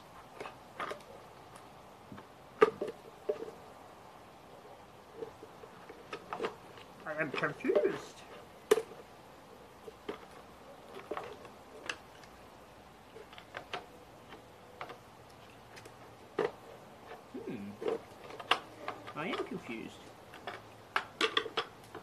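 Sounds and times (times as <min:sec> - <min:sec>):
light clicks and knocks of parts: 0:13.1 - 0:22.0.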